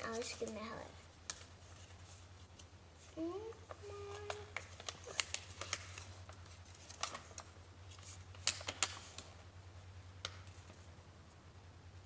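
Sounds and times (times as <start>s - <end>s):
packaging sheet crinkling: 3.7s - 9.3s.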